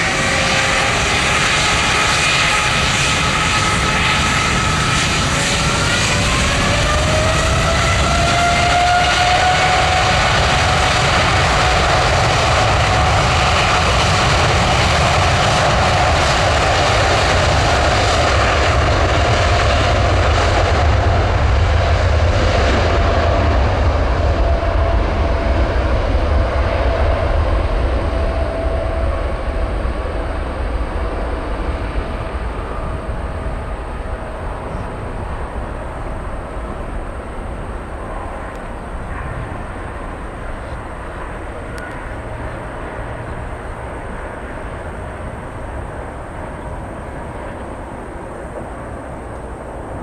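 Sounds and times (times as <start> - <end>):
jet airliner engines running: 0.0 - 50.0.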